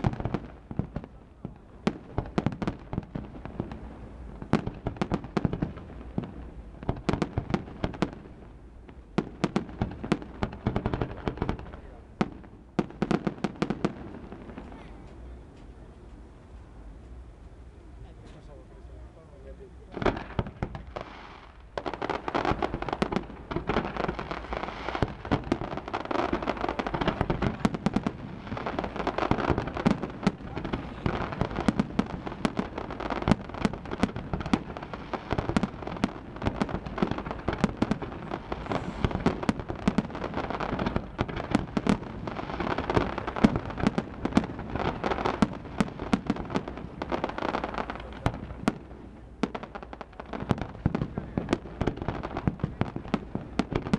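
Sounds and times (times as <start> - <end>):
fireworks bangs and crackling: 0.0 - 16.1, 18.2 - 53.9.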